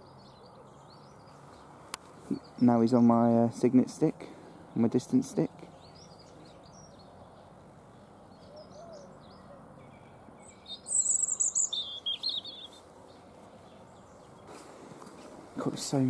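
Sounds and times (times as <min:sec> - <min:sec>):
faint bird chirps: 0:05.8 - 0:14.6
robin singing warbling phrase: 0:10.6 - 0:12.8.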